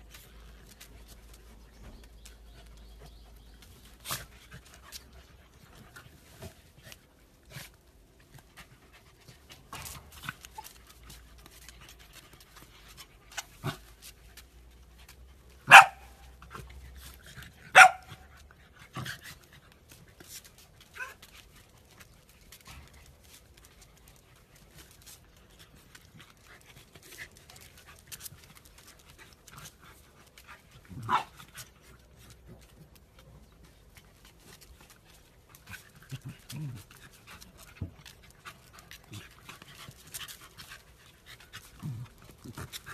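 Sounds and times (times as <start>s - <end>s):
dogs barking: 15.7s - 16.2s, 17.7s - 18.1s.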